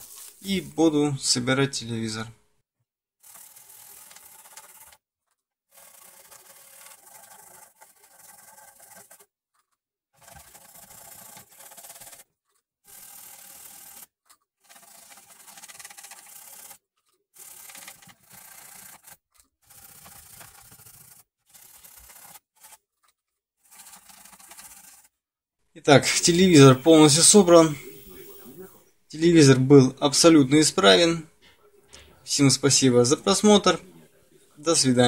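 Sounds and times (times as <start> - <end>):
hands rubbing and scraping: 0.0 - 0.7, 25.9 - 28.6.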